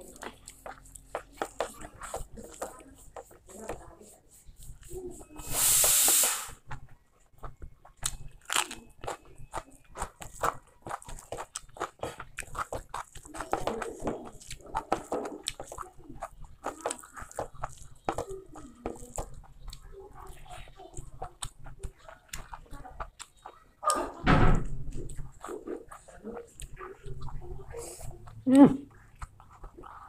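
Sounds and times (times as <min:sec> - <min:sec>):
chewing with wet clicks: 0:00.0 - 0:03.5, 0:06.7 - 0:24.2, 0:24.8 - 0:30.0
fingers squishing rice: 0:00.0 - 0:23.9
loud rushing hiss: 0:05.5 - 0:06.6.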